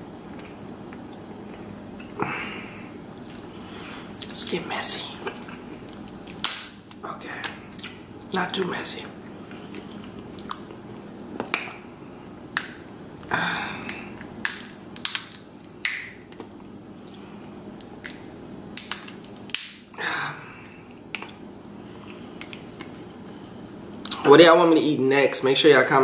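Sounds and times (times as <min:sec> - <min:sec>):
lip-smacking and chewing: 0:00.2 - 0:02.2, 0:05.2 - 0:08.0, 0:09.5 - 0:11.8, 0:13.8 - 0:19.8, 0:20.6 - 0:21.4, 0:22.0 - 0:24.2.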